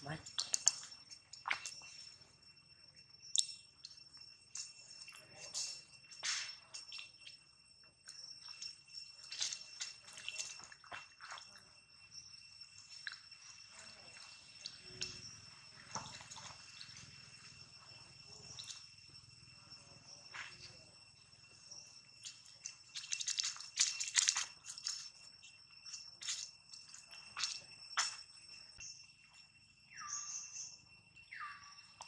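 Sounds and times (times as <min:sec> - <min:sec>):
insect chorus droning: 0:00.0 - 0:32.0
rustling of dry leaves and twigs: 0:22.1 - 0:27.6.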